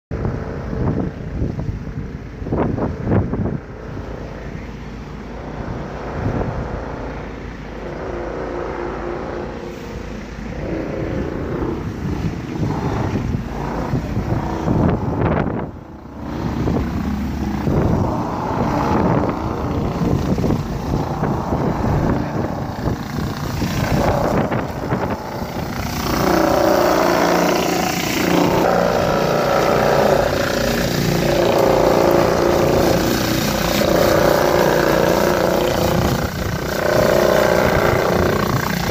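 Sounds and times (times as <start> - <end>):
distant traffic: 0.1 - 38.9
wind on microphone: 0.1 - 38.9
pressure washer spraying: 16.2 - 38.9
rotary surface cleaner spinning: 16.2 - 38.9.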